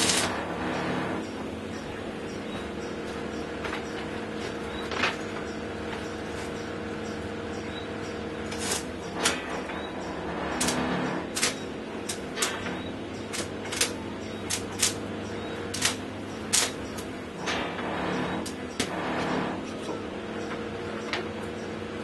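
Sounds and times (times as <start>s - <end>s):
welding arc crackling snaps: 0.0s - 1.2s, 8.4s - 19.8s
electrical hum: 0.0s - 22.0s.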